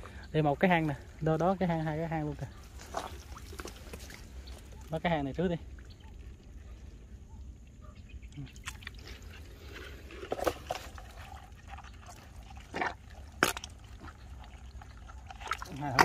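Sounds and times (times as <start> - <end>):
mud sloshing and splashing: 0.0 - 16.0
sharp mud smacks: 12.7 - 14.2.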